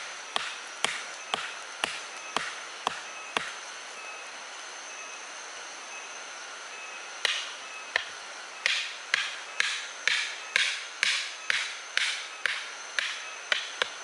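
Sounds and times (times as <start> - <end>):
steady high-pitched hum: 0.0 - 14.0
hand tool striking wood: 0.3 - 3.6, 7.2 - 14.0.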